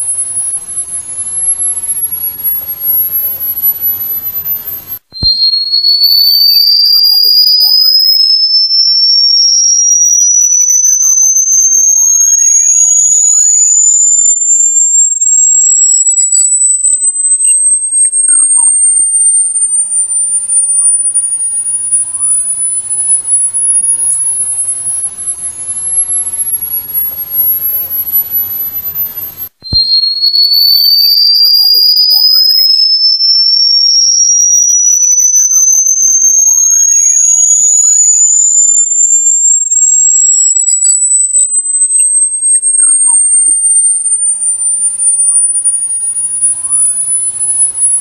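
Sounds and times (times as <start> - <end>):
high steady whistle tone: 0.0 - 48.0
pure tone rising in pitch: 0.0 - 48.0.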